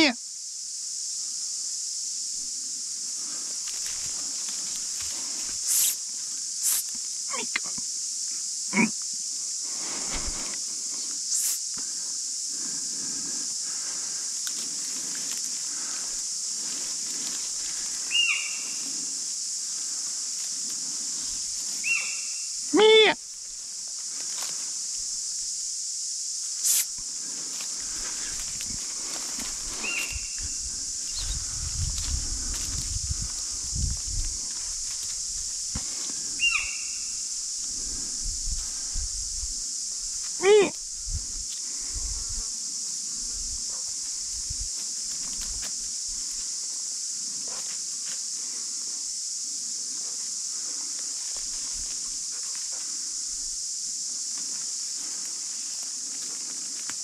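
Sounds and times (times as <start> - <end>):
steady high hiss: 0.0 - 57.0
footsteps through undergrowth: 3.3 - 5.7, 13.6 - 22.2, 23.3 - 25.0, 27.1 - 36.6.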